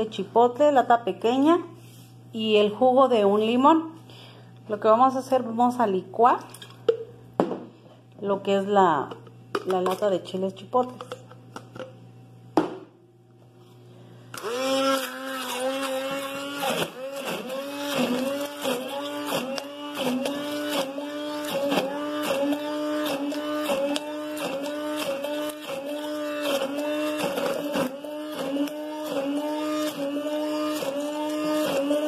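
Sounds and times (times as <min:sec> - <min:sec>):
blender motor humming: 0:14.3 - 0:32.0.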